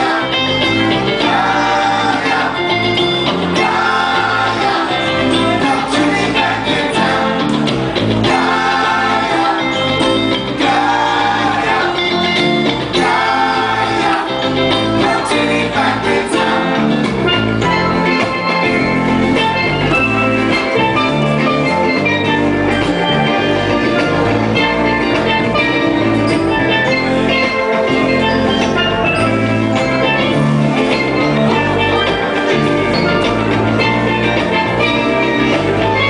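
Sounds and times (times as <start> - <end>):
drums: 0.0 - 36.0
guitars: 0.0 - 36.0
keyboard: 0.0 - 36.0
steel guitar: 0.0 - 36.0
man singing backing: 3.5 - 7.6.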